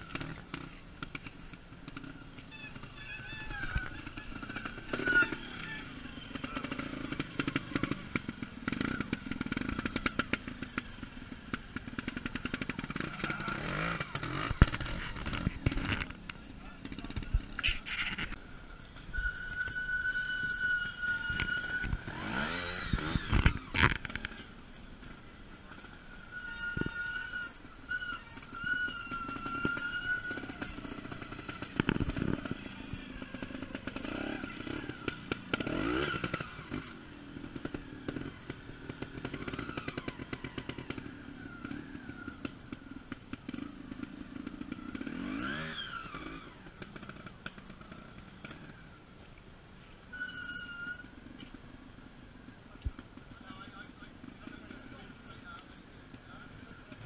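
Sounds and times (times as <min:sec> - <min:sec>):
motorcycle engines revving: 0:00.0 - 0:57.0.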